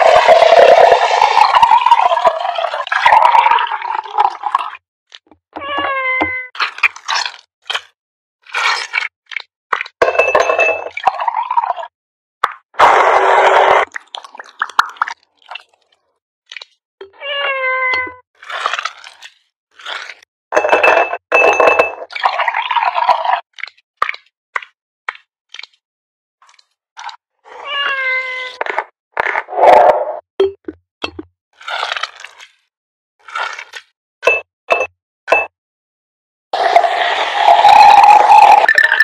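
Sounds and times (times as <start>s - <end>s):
cat meowing: 5.6s - 6.5s, 17.1s - 18.2s, 27.5s - 28.6s
clinks of ice and glassware: 10.0s - 10.9s, 20.6s - 22.0s.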